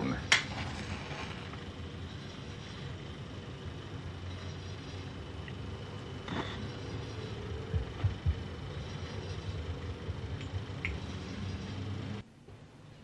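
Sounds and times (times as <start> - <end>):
low hum and hiss: 0.0 - 13.0
low thumps: 7.4 - 11.1.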